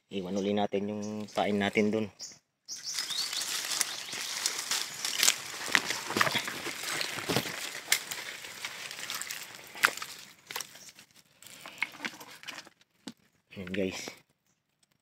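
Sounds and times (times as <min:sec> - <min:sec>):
footsteps crunching through brush: 0:02.7 - 0:12.7
twig snapping: 0:02.9 - 0:13.8.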